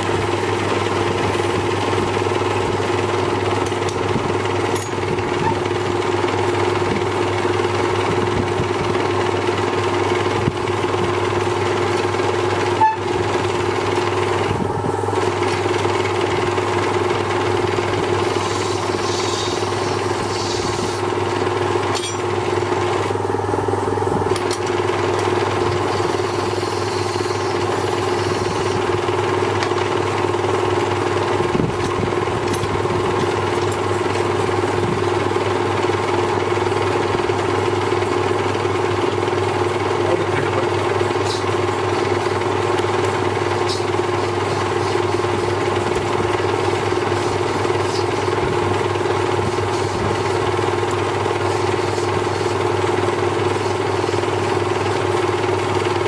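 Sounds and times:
cutting tool on spinning barrel: 0:00.0 - 0:23.2, 0:24.3 - 0:56.0
electric lathe humming: 0:15.0 - 0:23.4, 0:24.3 - 0:56.0.

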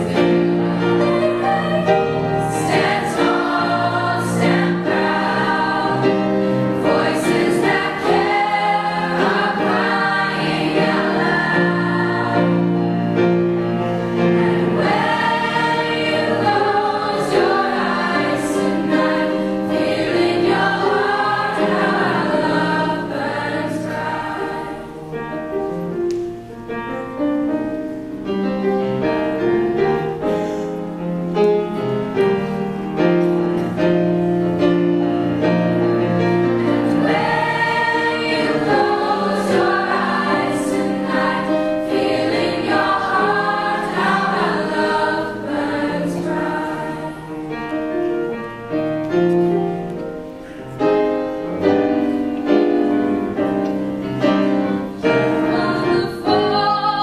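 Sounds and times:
children's choir singing: 0:00.0 - 0:25.8, 0:34.7 - 0:48.4, 0:49.1 - 0:57.0
piano accompaniment: 0:00.0 - 0:57.0.

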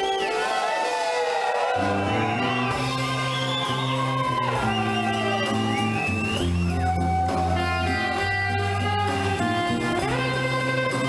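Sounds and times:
bass line: 0:01.7 - 0:11.0
electric guitar melody: 0:02.3 - 0:11.0.

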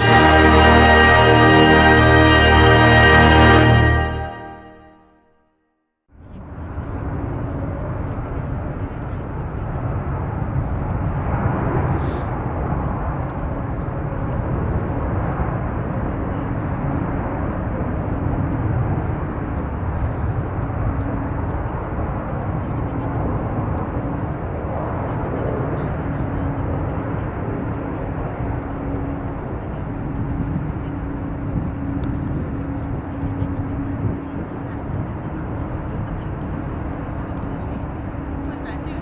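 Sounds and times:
jet engine roar: 0:00.0 - 0:04.9.

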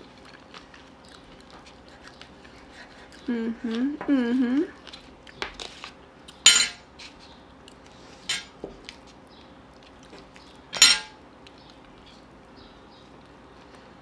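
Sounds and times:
fork clinking against plate: 0:06.4 - 0:06.8, 0:10.8 - 0:11.2.

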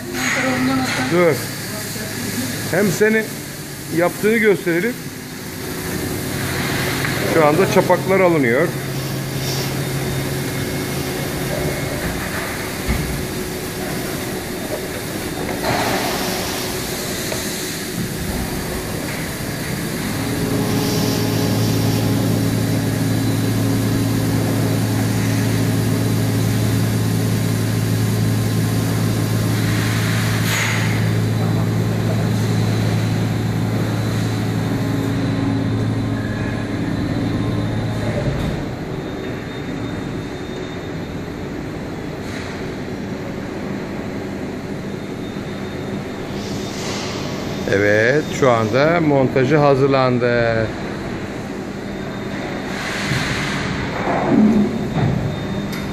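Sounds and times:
electric motor hum of machinery: 0:00.0 - 0:42.4.

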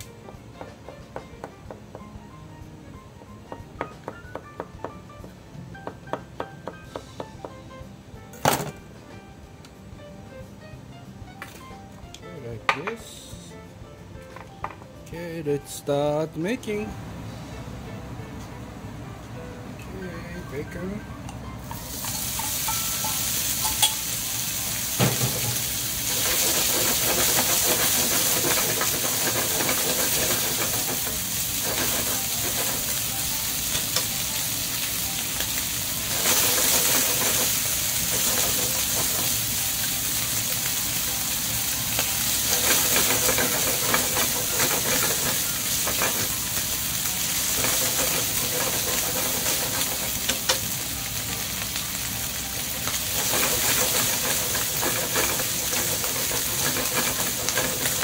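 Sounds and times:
bacon sizzling in frying pan: 0:21.7 - 0:58.0.

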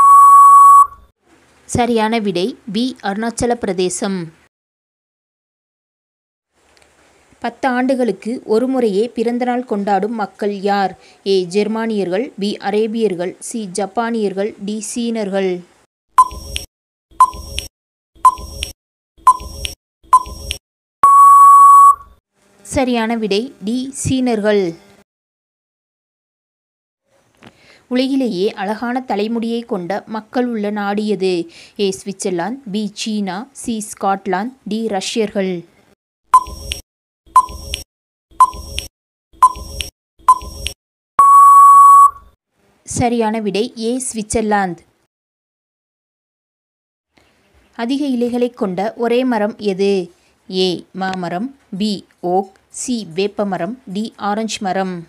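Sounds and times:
electronic beeps with ticking: 0:00.0 - 0:01.0, 0:16.2 - 0:22.1, 0:36.3 - 0:42.3
long steady beep: 0:00.0 - 0:01.0, 0:21.0 - 0:22.1, 0:41.2 - 0:42.3.

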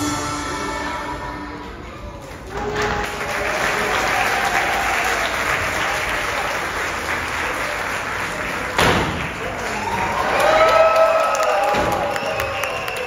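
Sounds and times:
audience applauding: 0:02.2 - 0:13.0.

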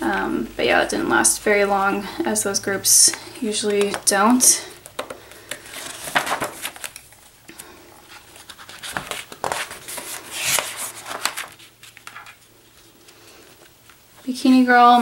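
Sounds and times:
paper pages rustling: 0:03.0 - 0:14.0.

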